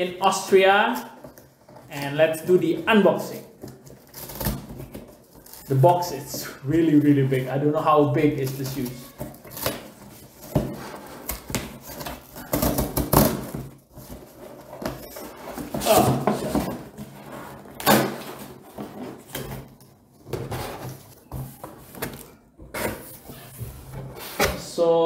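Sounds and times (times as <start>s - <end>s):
tape and cardboard ripping: 3.6s - 6.2s, 8.5s - 16.3s.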